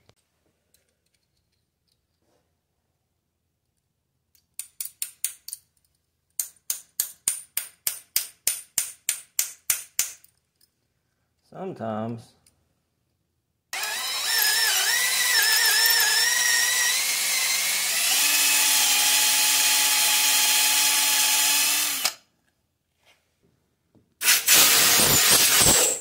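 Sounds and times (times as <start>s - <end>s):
power tool motor running: 13.8s - 22.2s, 24.2s - 25.8s.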